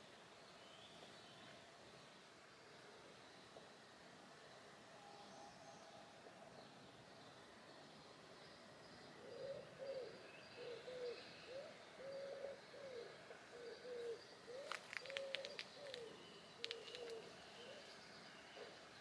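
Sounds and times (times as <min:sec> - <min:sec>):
pigeon cooing: 0:09.2 - 0:17.8
sharp clicks or chirps: 0:14.6 - 0:17.3.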